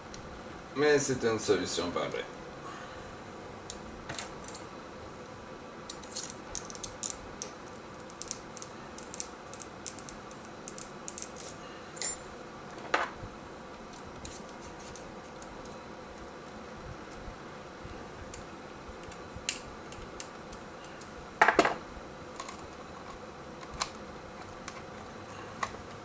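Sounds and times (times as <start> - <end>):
metal parts and tools clinking: 4.1 - 4.7, 11.1 - 12.3.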